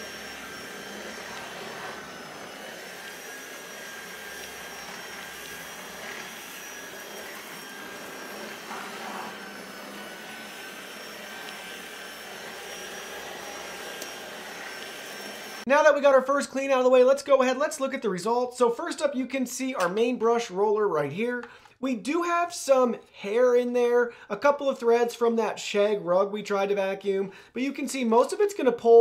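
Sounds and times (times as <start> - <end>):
cordless vacuum running: 0.0 - 15.7.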